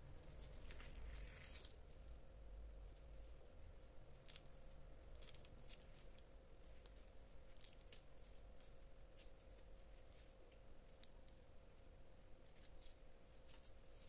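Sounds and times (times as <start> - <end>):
faint steady hum: 0.0 - 14.0
plastic gloves crinkling: 0.0 - 14.0.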